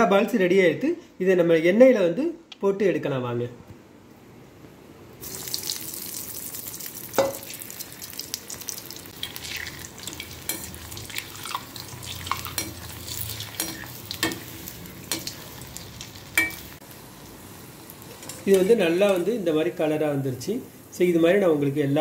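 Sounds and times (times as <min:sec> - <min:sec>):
oil sizzling and crackling: 0:05.2 - 0:22.0.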